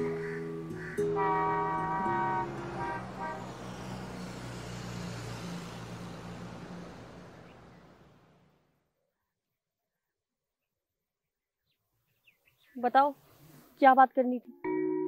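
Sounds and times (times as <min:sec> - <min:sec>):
passing vehicles: 0:00.0 - 0:08.8
car horn toots: 0:01.0 - 0:03.6.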